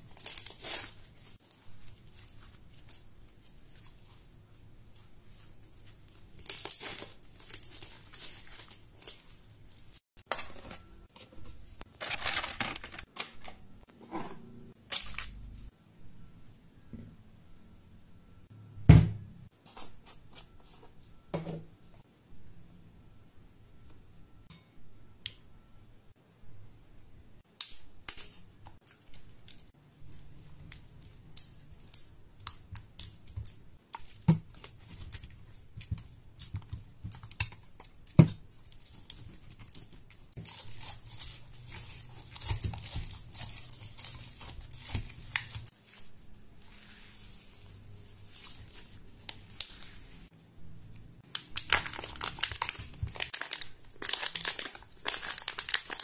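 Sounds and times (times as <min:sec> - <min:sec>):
plastic wrapper crinkling: 0:00.0 - 0:04.3, 0:04.9 - 0:10.5, 0:11.9 - 0:13.4, 0:29.1 - 0:50.3, 0:51.3 - 0:56.0.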